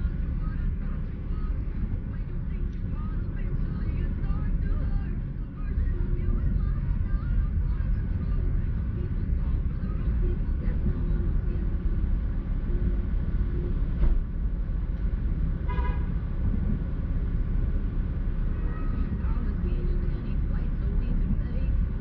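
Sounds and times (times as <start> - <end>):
car engine idling: 0.0 - 22.0
car horn toot: 15.6 - 16.1.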